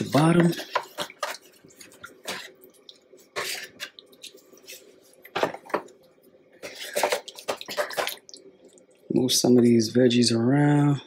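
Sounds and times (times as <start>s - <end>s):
spoon splashing and scraping in pan: 0.0s - 6.0s, 6.6s - 8.8s.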